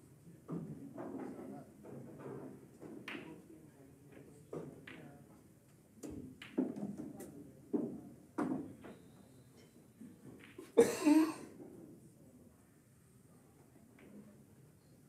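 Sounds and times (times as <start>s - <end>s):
sharp clack of pool balls: 0.5s - 3.4s, 4.5s - 5.1s, 6.0s - 9.0s, 10.3s - 10.9s
soft knocks of pool balls: 0.5s - 3.4s, 6.0s - 8.9s.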